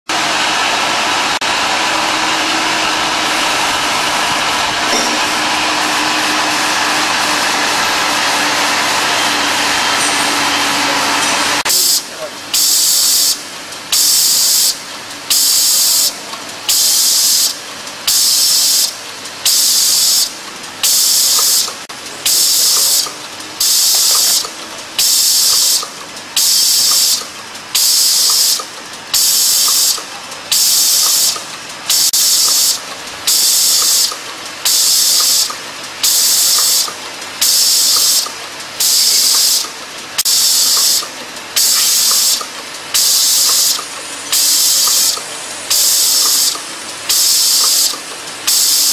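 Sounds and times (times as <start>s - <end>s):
machine hiss bursts: 11.6s - 48.9s.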